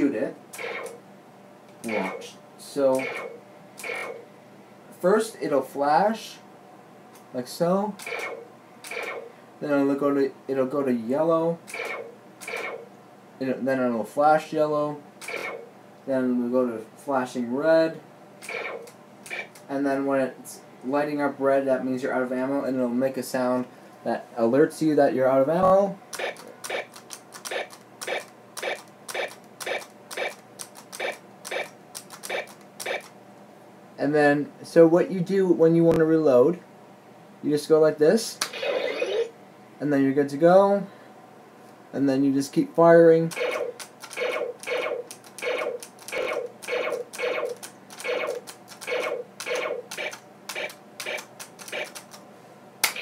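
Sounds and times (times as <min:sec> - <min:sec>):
toy blaster alert sound: 0:00.6 - 0:01.0, 0:03.0 - 0:04.2, 0:08.0 - 0:09.2, 0:11.7 - 0:12.8, 0:18.4 - 0:19.5, 0:27.5 - 0:30.4, 0:31.0 - 0:33.1, 0:38.5 - 0:39.3, 0:43.3 - 0:52.0.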